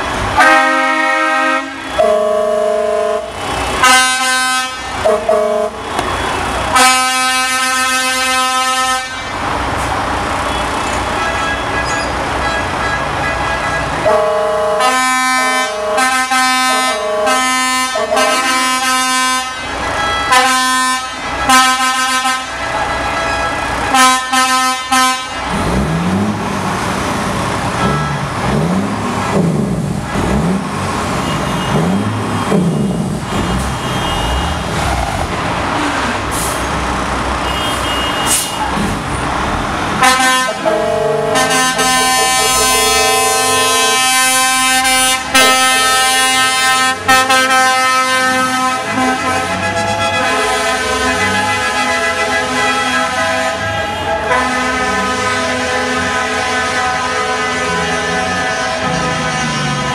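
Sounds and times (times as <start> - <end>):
truck air horns honking: 0.0 - 26.3, 27.6 - 29.1, 29.7 - 35.0, 35.9 - 39.2, 39.9 - 59.9
heavy traffic noise: 0.0 - 59.9
large engine revving: 25.3 - 37.4, 38.7 - 56.4.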